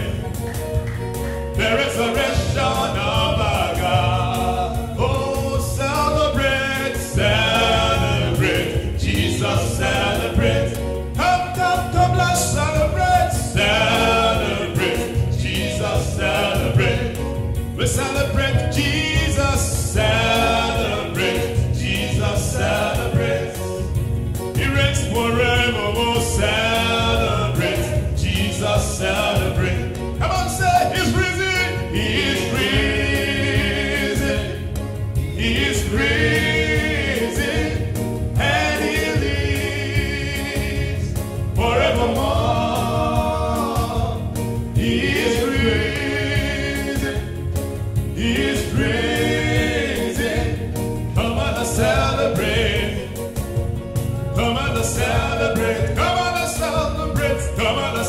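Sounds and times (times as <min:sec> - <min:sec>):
low musical accompaniment: 0:00.0 - 0:58.0
man singing into a microphone: 0:01.6 - 0:23.7, 0:24.6 - 0:32.8, 0:54.3 - 0:58.0.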